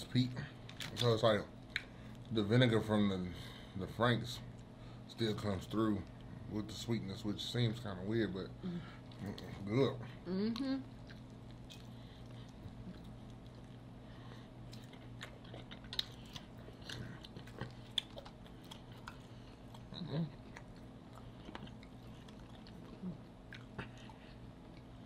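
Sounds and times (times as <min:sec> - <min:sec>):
steady low hum: 0:00.0 - 0:25.0
people chewing food: 0:08.6 - 0:25.0.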